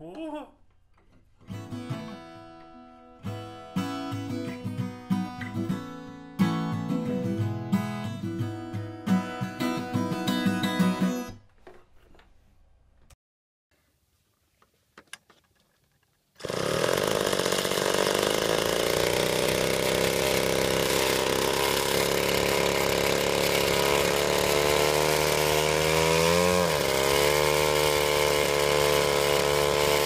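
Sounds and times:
two-stroke engine running: 16.4s - 30.0s.

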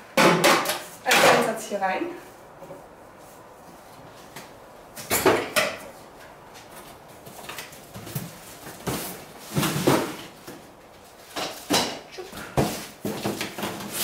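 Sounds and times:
cardboard and plastic rustling: 6.5s - 11.7s, 12.3s - 14.0s.

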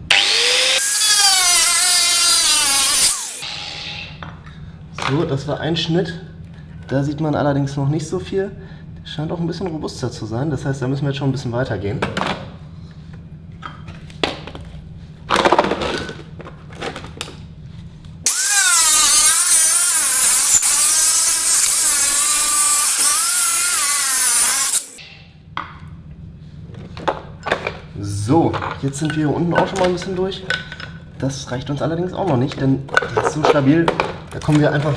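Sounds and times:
angle grinder cutting plastic: 0.0s - 4.2s, 18.3s - 25.0s.

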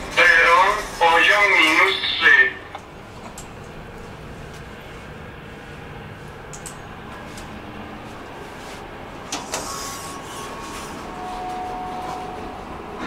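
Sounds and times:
metro station hum: 0.0s - 13.0s
steady high tone: 9.9s - 12.6s.

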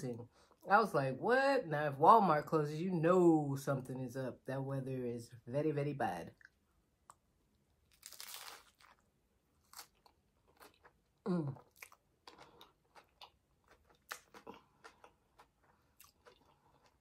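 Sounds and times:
taco shell crunching: 7.8s - 17.0s
chewing with wet mouth clicks: 11.6s - 17.0s.

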